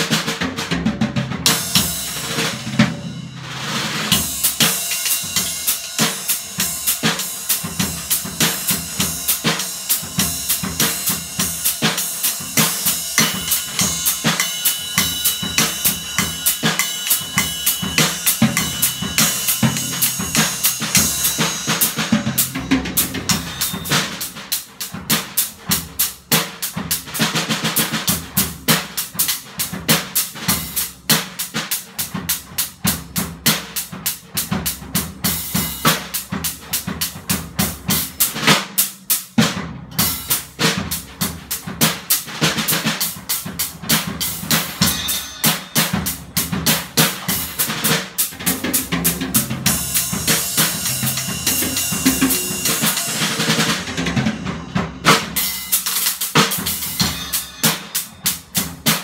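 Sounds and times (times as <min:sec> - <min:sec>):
drum kit playing fast: 0:00.0 - 0:59.0
cymbal hits: 0:11.9 - 0:24.3, 0:44.8 - 0:46.2, 0:49.7 - 0:58.4.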